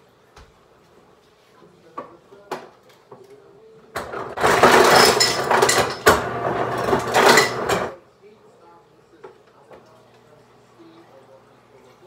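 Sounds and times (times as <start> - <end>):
water dispenser running into a glass: 4.4 - 7.9.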